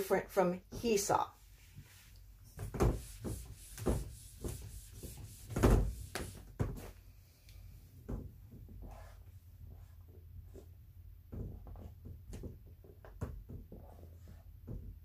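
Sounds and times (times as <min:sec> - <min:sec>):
cloth wiping whiteboard: 0:01.3 - 0:07.0, 0:08.7 - 0:10.8, 0:13.7 - 0:14.8
marker writing on board: 0:02.6 - 0:06.5, 0:08.8 - 0:10.7, 0:13.7 - 0:14.8
dull thumps and knocks: 0:02.6 - 0:06.9, 0:08.0 - 0:08.9, 0:11.2 - 0:15.0.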